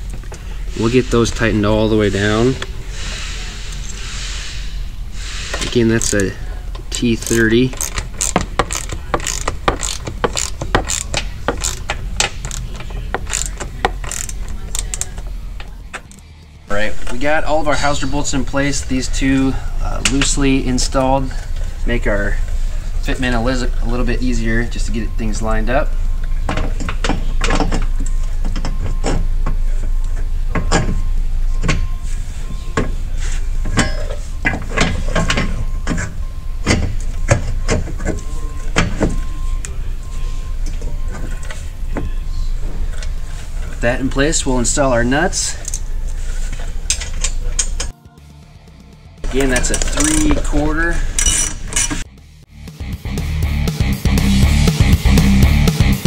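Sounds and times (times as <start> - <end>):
steady low hum: 0.0 - 52.8
metal knocks clunks and scrapes: 5.4 - 16.2, 26.3 - 44.0, 49.2 - 52.1
hand ratchet clicking: 5.6 - 15.2, 49.6 - 50.4, 51.1 - 52.0.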